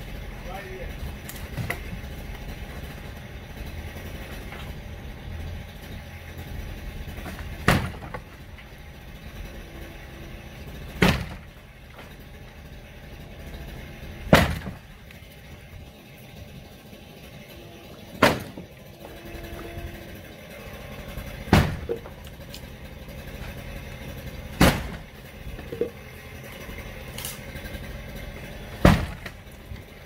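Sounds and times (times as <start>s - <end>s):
low engine rumble: 0.0s - 30.0s
loud demolition knocks: 7.0s - 8.5s, 10.8s - 12.2s, 14.2s - 15.0s, 18.1s - 18.7s, 21.3s - 22.2s, 24.5s - 26.0s, 28.7s - 29.6s.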